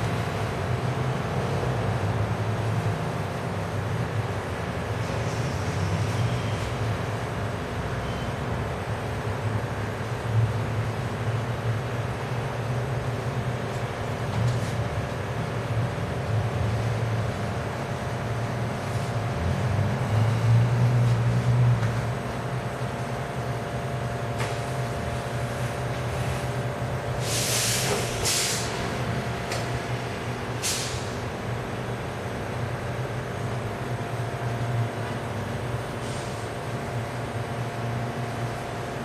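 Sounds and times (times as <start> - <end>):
low mechanical hum: 0.0 - 39.0
short hisses: 27.2 - 28.8, 30.6 - 31.1.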